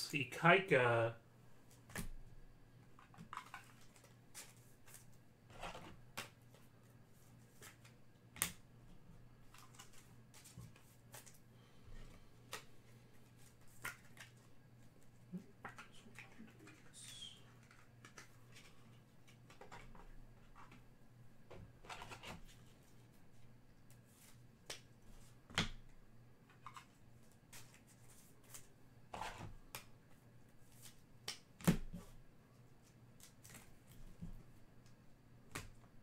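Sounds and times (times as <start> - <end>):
cards and packaging rustling: 3.0 - 6.7, 9.4 - 11.4, 12.5 - 15.0, 15.6 - 20.8, 21.8 - 23.0.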